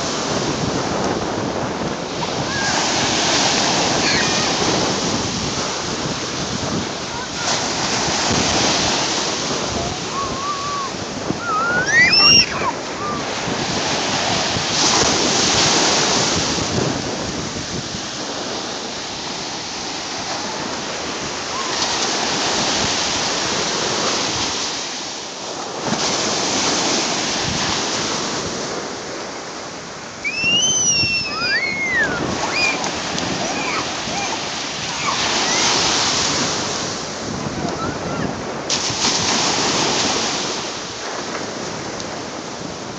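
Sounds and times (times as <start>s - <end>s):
waves washing up a beach: 0.0s - 42.9s
child squealing: 2.4s - 2.8s, 3.8s - 4.7s, 9.8s - 13.3s, 30.2s - 35.9s, 37.7s - 38.3s.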